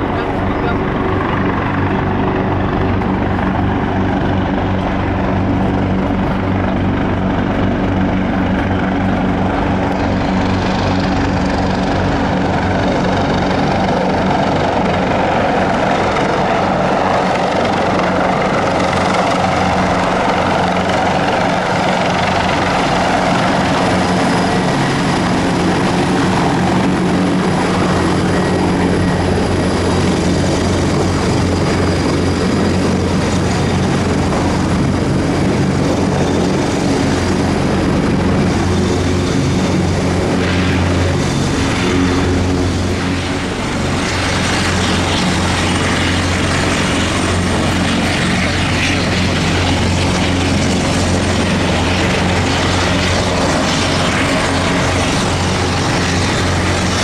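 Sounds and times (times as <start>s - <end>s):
helicopter rotor and turbines: 0.0s - 57.0s
high turbine whine: 0.0s - 57.0s.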